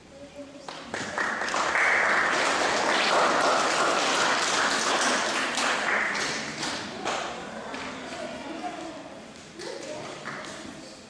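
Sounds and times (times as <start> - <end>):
audience applauding: 0.9 - 7.2.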